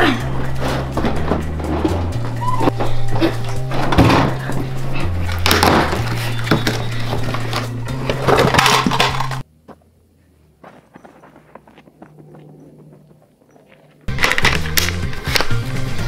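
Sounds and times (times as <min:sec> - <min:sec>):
background music with bass line: 0:00.0 - 0:09.4, 0:14.1 - 0:16.0
footsteps on gravel: 0:09.6 - 0:14.7.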